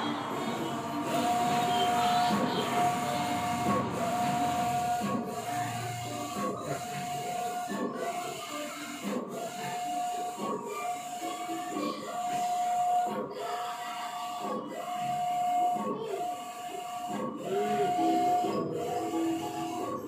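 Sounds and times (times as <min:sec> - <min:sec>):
printer carriage whining: 0:00.0 - 0:20.0.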